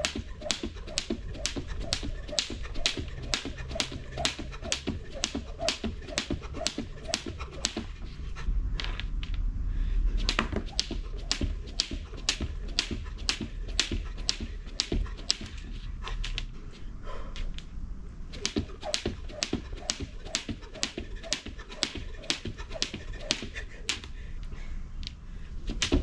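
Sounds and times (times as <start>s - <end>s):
skipping rope slapping ground: 0.0s - 8.1s, 10.2s - 16.5s, 18.3s - 24.2s, 25.7s - 26.0s
low rumble: 0.0s - 26.0s.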